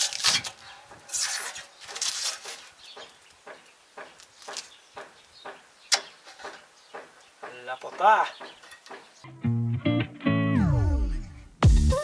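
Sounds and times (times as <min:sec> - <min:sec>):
plastic film tearing: 0:00.0 - 0:02.8.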